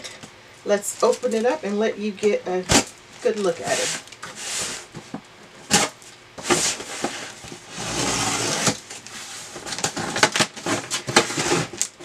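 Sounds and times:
packing tape rasping on cardboard: 0:02.7 - 0:12.0
short scrape: 0:03.7 - 0:04.9, 0:05.7 - 0:09.5.

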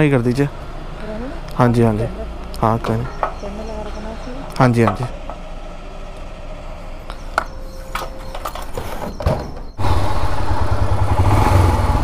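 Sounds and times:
low background hum: 0:00.0 - 0:11.2
motorcycle engine running: 0:09.7 - 0:12.0.

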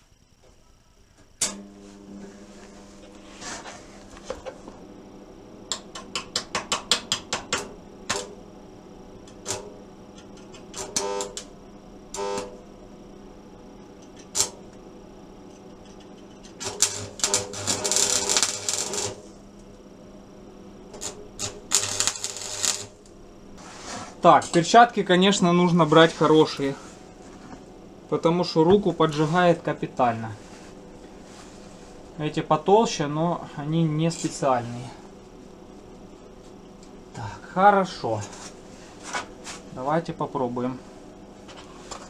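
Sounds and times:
hissy scraping noise: 0:23.6 - 0:24.2.

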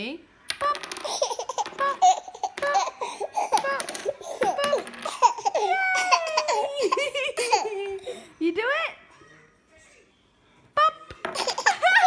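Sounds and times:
baby giggling: 0:01.0 - 0:08.3, 0:11.4 - 0:12.0
baby squealing: 0:01.1 - 0:07.6.

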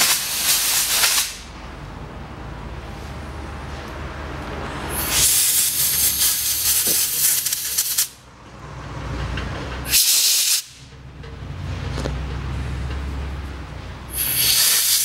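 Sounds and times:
compressed air blasting: 0:00.0 - 0:01.5, 0:04.9 - 0:08.2, 0:09.9 - 0:10.9, 0:14.1 - 0:15.0.

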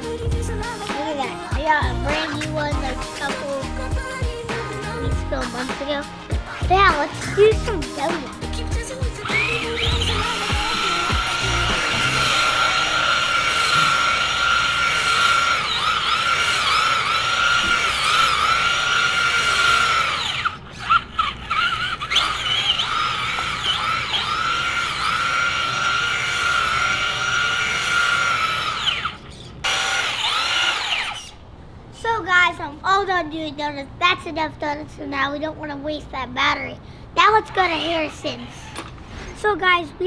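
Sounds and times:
rc truck electric motor whining: 0:07.0 - 0:31.5, 0:37.3 - 0:39.1.

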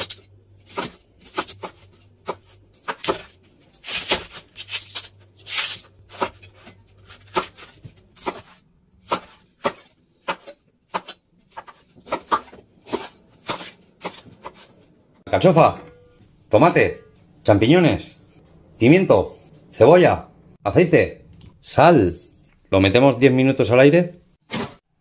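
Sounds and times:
knife chopping on wooden board: 0:06.1 - 0:14.7.

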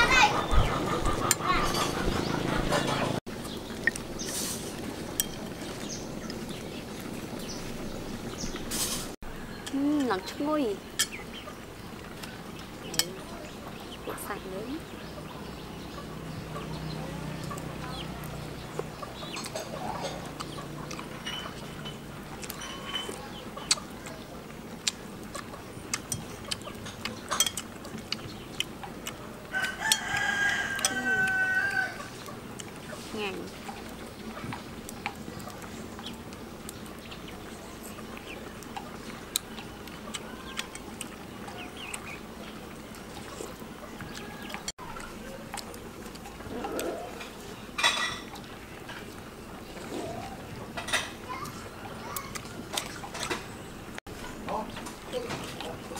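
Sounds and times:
steady low hum: 0:00.0 - 0:30.0
chickens clucking: 0:00.0 - 0:55.9
outdoor background: 0:00.0 - 0:55.9.

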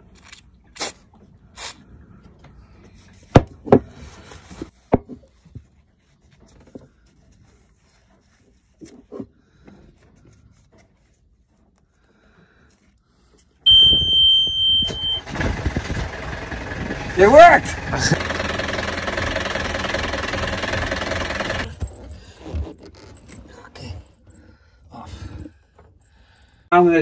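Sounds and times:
warning buzzer beep: 0:13.7 - 0:15.2
engine starter cranking: 0:13.7 - 0:21.8.

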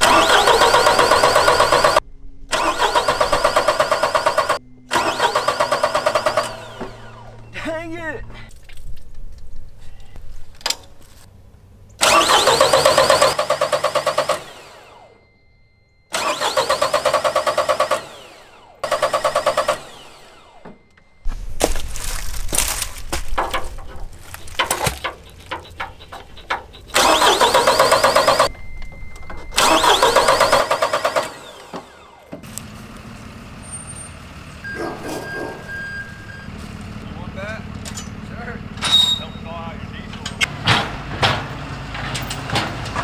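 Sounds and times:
diesel engine cranking on starter: 0:00.0 - 0:07.5, 0:12.0 - 0:15.2, 0:16.1 - 0:21.0, 0:24.0 - 0:43.0
steady high buzzer tone: 0:14.6 - 0:16.1
clicks and knocks: 0:23.1 - 0:27.0.

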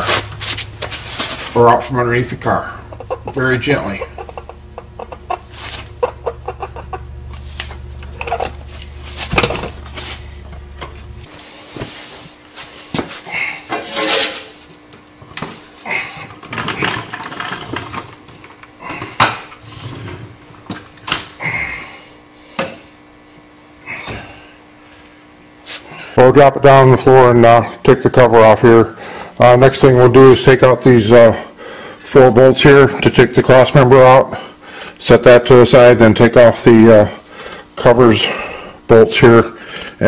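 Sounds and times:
low steady hum: 0:00.0 - 0:40.0
metal clunks and scrapes: 0:07.3 - 0:11.0.

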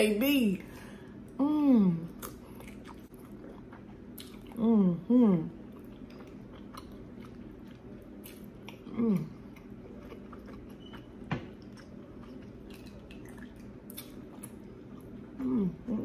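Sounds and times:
close chewing: 0:05.7 - 0:15.3.

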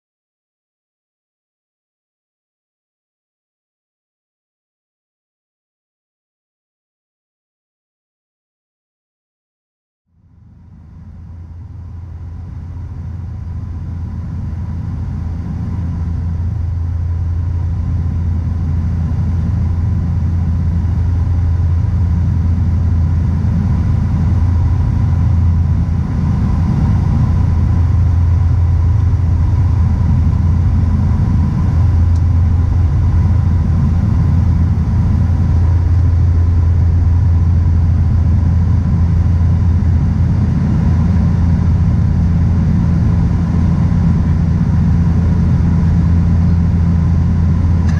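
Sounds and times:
aircraft cabin engine drone: 0:10.1 - 0:47.9
faint whine: 0:10.1 - 0:47.9.

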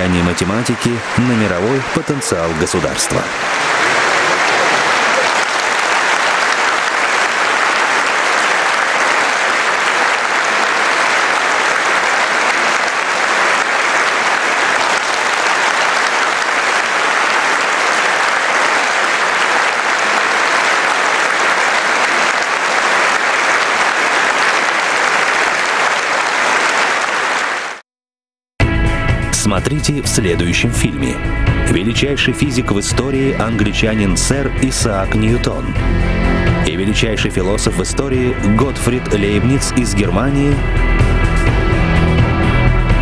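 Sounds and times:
audience applauding: 0:00.0 - 0:27.8, 0:36.7 - 0:42.6.

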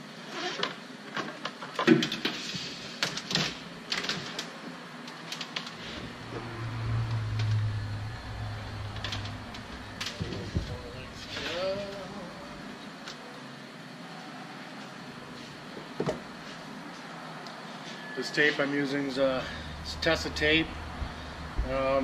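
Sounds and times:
low steady hum: 0:05.8 - 0:13.0, 0:19.1 - 0:22.0.

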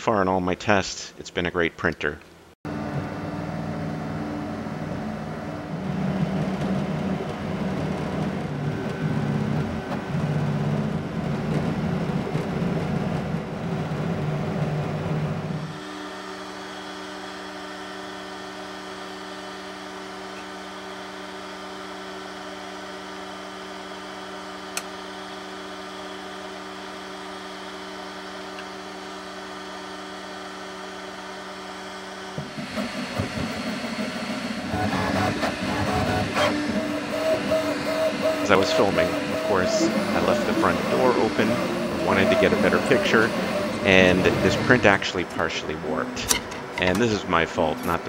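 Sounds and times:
printer humming: 0:02.7 - 0:16.7, 0:24.4 - 0:48.0
uneven mechanical sound: 0:33.8 - 0:48.0.

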